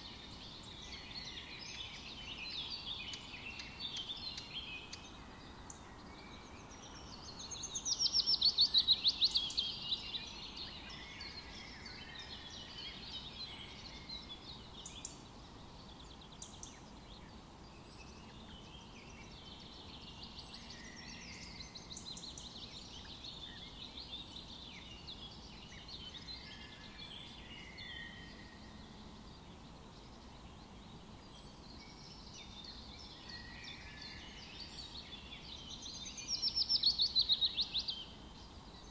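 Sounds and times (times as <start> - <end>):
birds chirping and trilling: 0.0 - 38.9
faint background hiss: 0.0 - 38.9.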